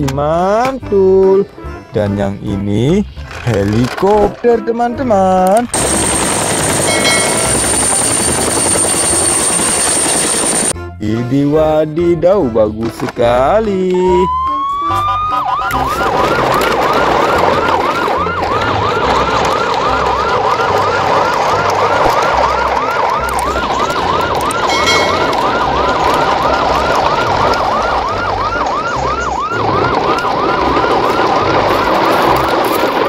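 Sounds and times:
electronic siren yelping: 0:05.8 - 0:10.7, 0:14.1 - 0:32.2.

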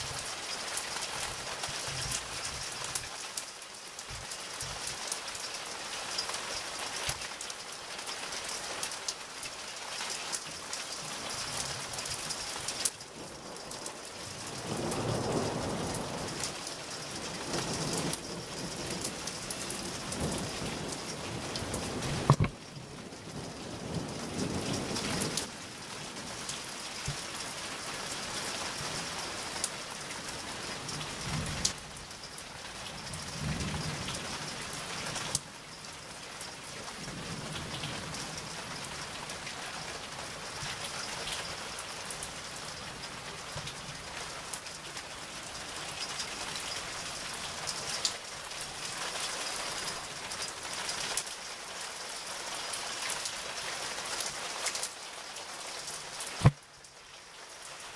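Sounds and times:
raindrops tapping nearby: 0:00.0 - 0:57.9
steady rain: 0:00.0 - 0:57.9
low thunder rumbling: 0:13.2 - 0:25.5.

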